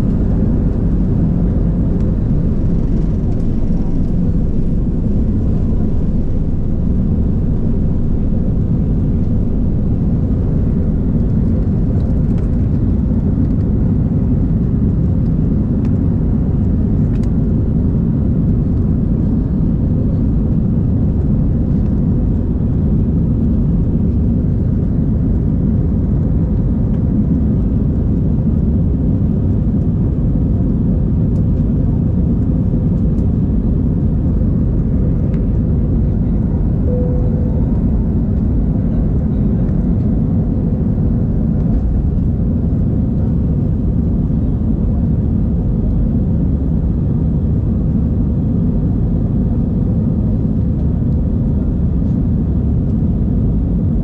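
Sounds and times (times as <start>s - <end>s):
jet engines rumbling in cabin: 0.0s - 54.0s.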